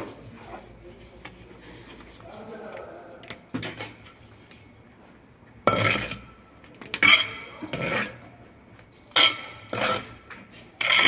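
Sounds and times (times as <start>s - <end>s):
trowels scraping mortar on bricks: 5.6s - 8.4s, 9.1s - 11.0s.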